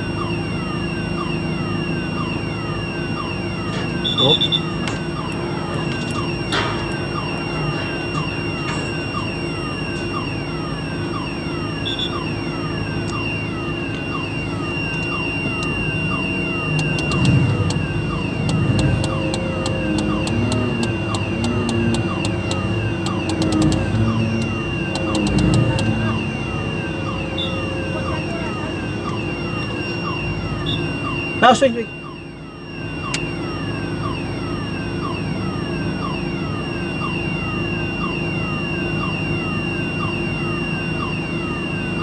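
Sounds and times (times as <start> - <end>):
crane diesel engine humming: 0.0 - 42.0
repeating falling tone: 1.7 - 37.7
fast ticking: 16.8 - 17.8, 18.5 - 25.9.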